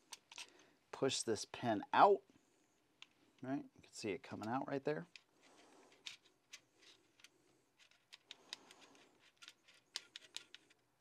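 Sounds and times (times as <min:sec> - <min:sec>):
metal gun parts clicking: 0:00.0 - 0:00.5, 0:05.9 - 0:10.8.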